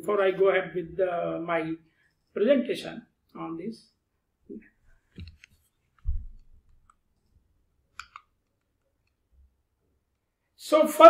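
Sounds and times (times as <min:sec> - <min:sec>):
computer mouse clicks: 0:07.9 - 0:09.2.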